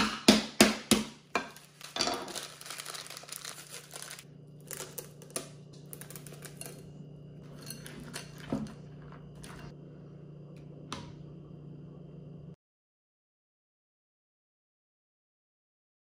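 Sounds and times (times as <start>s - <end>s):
plastic candy bag crinkling: 1.4s - 6.8s
candy clicking into glass bowl: 1.5s - 6.9s.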